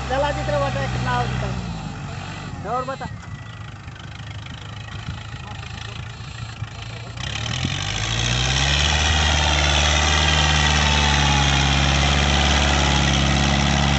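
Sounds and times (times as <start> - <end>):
tractor diesel engine under load: 0.0 - 13.9.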